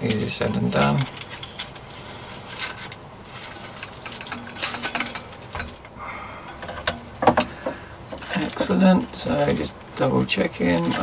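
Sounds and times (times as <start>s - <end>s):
light metallic clinks: 0.0s - 2.0s, 3.3s - 8.8s.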